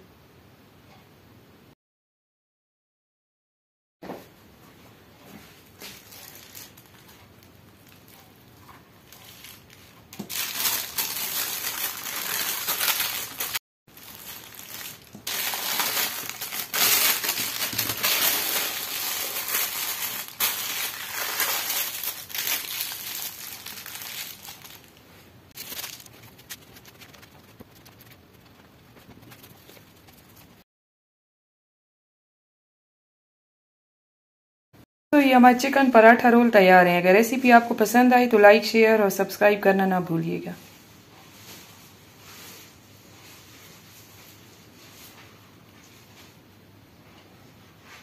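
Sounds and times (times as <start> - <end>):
plastic wrap crinkling: 5.6 - 30.6
paper rustling: 9.0 - 30.6.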